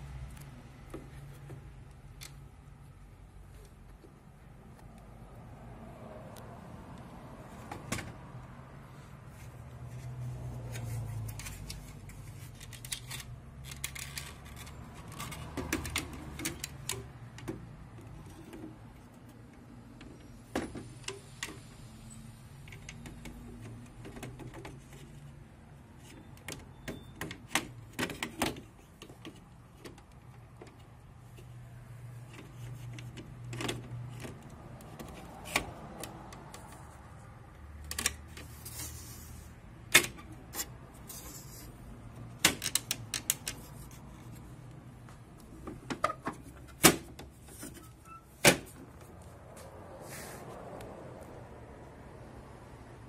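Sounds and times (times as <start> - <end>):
plastic parts clicking and knocking: 10.7 - 21.6, 22.6 - 25.2, 26.0 - 31.6, 32.3 - 37.0, 39.9 - 41.2, 42.2 - 44.5, 45.4 - 47.8.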